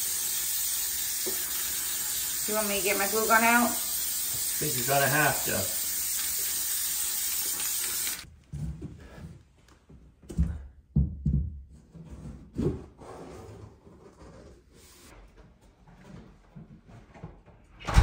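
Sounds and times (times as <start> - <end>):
aerosol spray can hissing: 0.0 - 8.3
dull knocks of stair tread: 10.2 - 11.8.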